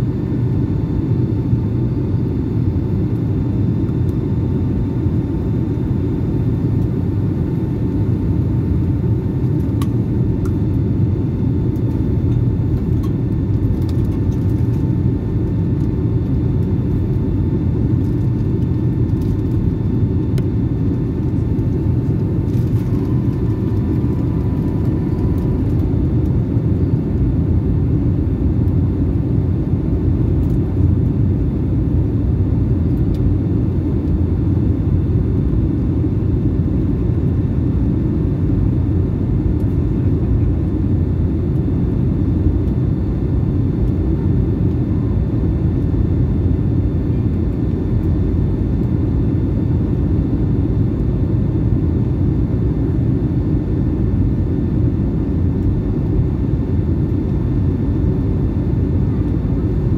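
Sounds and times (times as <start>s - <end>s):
faint high whine: 0.0s - 31.4s
aircraft engines rumbling: 0.0s - 59.9s.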